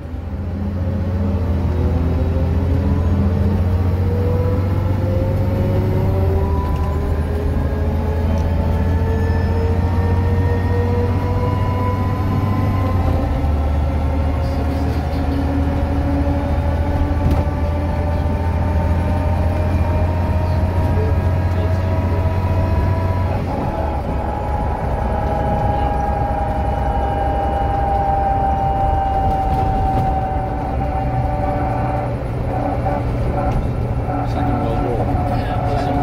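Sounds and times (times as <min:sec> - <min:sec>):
diesel bus engine under load: 0:00.0 - 0:36.0
axle whine: 0:20.9 - 0:36.0.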